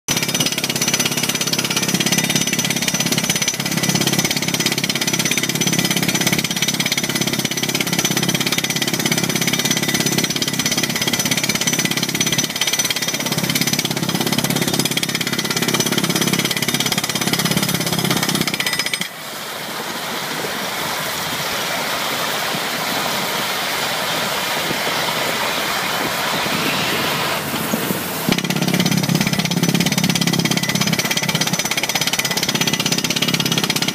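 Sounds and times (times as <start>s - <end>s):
rock drill hammering: 0.1s - 19.2s, 28.2s - 33.9s
steady mechanical noise: 0.1s - 33.9s.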